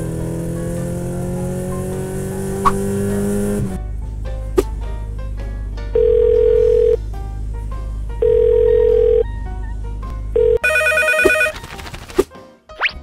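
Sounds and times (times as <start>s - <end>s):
background music: 0.0s - 13.0s
phone ringing: 6.0s - 7.0s, 8.2s - 9.3s, 10.4s - 11.6s
telephone ringback beeps: 6.0s - 7.0s, 8.2s - 9.3s, 10.4s - 11.6s.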